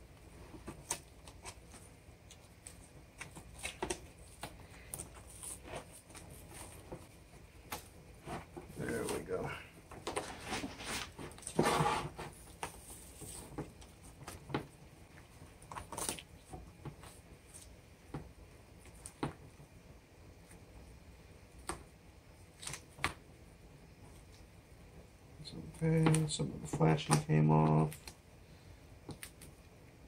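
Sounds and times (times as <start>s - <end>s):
rustling tear: 0.5s - 17.8s.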